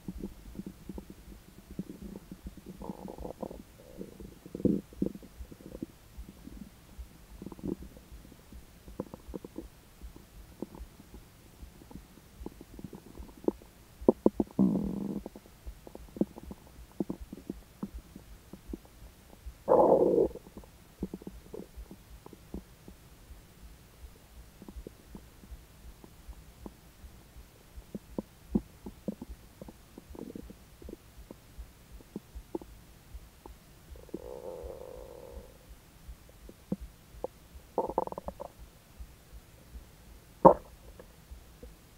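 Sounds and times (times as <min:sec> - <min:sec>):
stomach gurgling: 0:00.0 - 0:06.7, 0:07.4 - 0:08.2, 0:08.9 - 0:11.1, 0:11.8 - 0:18.9, 0:19.6 - 0:22.7, 0:27.9 - 0:31.4, 0:33.9 - 0:35.7, 0:36.5 - 0:38.6, 0:40.4 - 0:41.7.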